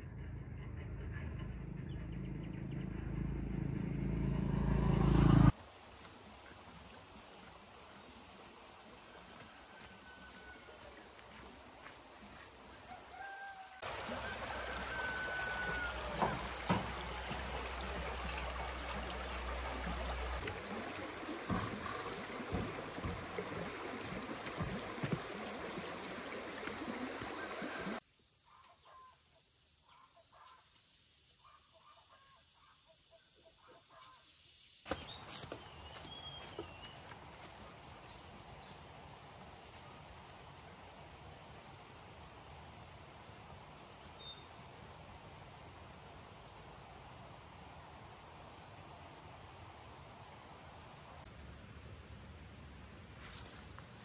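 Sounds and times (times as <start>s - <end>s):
insects trilling: 5.5s - 33.2s, 33.9s - 51.6s
birds calling: 13.9s - 28.0s, 34.9s - 37.2s.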